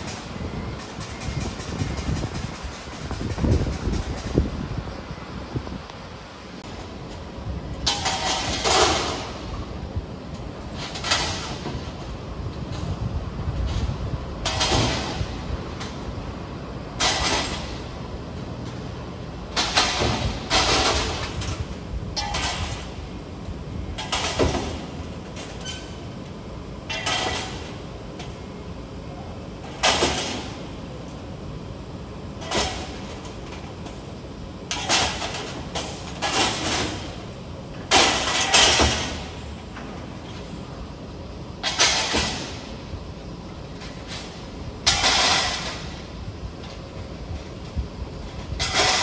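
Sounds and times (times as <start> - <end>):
hissing rattling bursts: 0.0 - 5.5
construction site background: 0.0 - 49.0.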